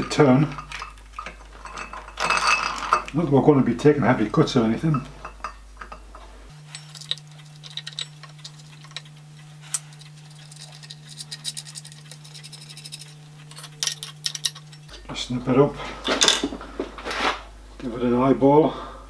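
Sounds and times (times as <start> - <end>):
steady low hum: 0.0 - 19.0
metal clicks and scrapes: 6.6 - 15.0.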